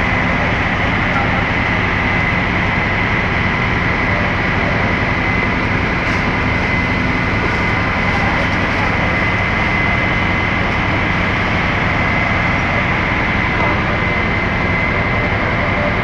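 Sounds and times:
fire truck engines running: 0.0s - 16.0s.

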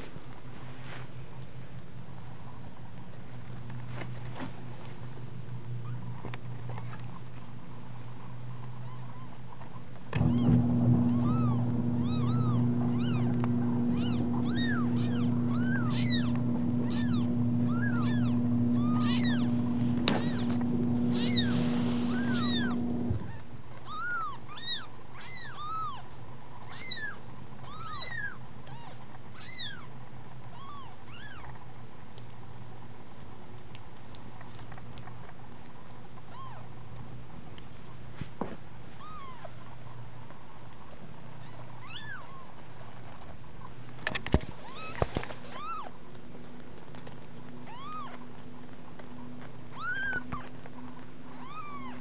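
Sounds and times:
steady hum: 10.1s - 23.8s
kittens mewing: 11.1s - 26.0s, 49.7s - 50.6s, 51.3s - 52.0s.

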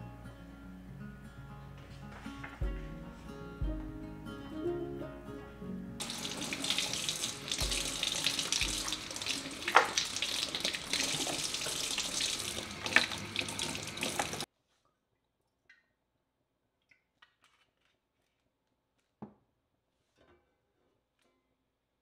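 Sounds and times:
water running into a steel sink: 6.0s - 14.5s
sharp knocks: 7.6s - 9.0s.

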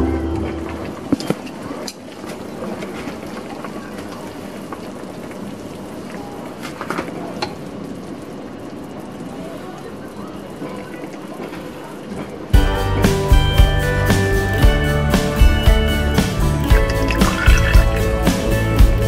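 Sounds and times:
broth simmering with bubbling hiss: 0.6s - 12.7s, 14.4s - 19.0s.

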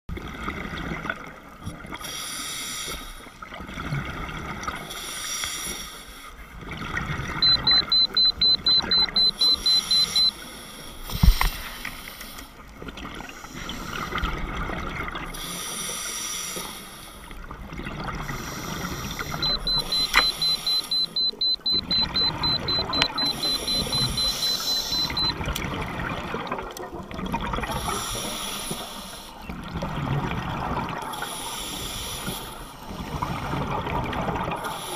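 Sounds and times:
rapid electronic beeping: 7.4s - 10.3s, 19.4s - 25.4s
scuba regulator breathing: 22.9s - 25.3s.

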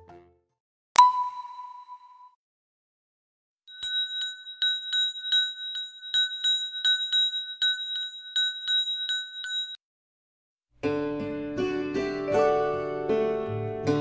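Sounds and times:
small bell ringing: 3.7s - 9.8s.

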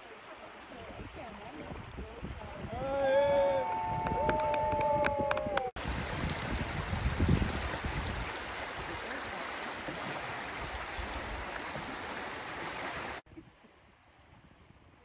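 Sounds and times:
creek water rushing over riffles: 0.0s - 4.0s, 5.7s - 13.2s
wind buffets on microphone: 0.8s - 9.0s.

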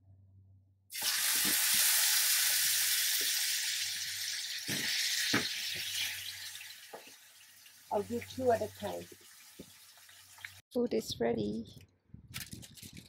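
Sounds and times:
steak sizzling in frying pan: 0.9s - 10.6s.

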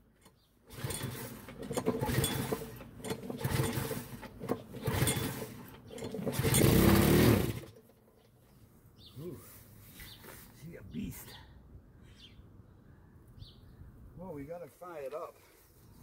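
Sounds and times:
lawn mower engine running unevenly: 0.0s - 8.3s.

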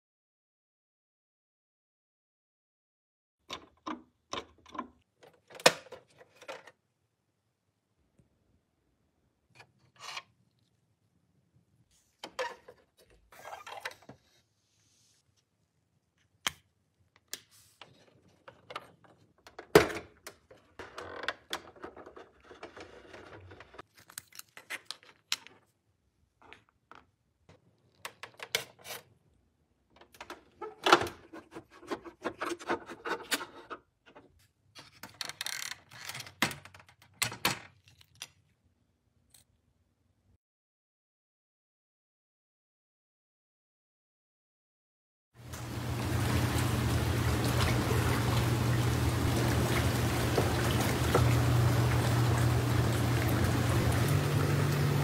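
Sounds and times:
rustling and scraping: 21.6s - 25.7s
plastic toy parts clicking: 35.0s - 38.5s.

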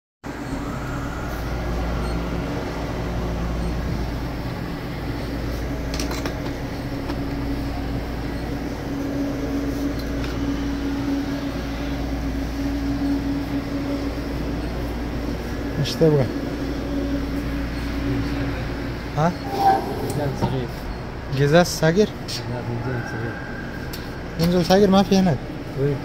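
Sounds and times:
machine hum: 19.3s - 21.4s
low steady tone: 19.4s - 21.3s.

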